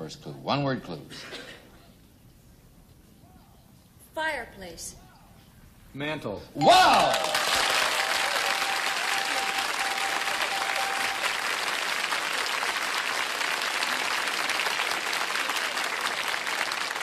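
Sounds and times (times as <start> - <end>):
studio audience applauding: 6.6 - 17.0.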